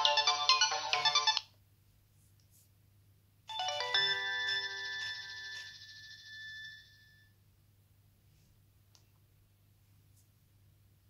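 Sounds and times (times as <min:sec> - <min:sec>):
phone ringtone melody: 0:00.0 - 0:01.4, 0:03.5 - 0:07.3.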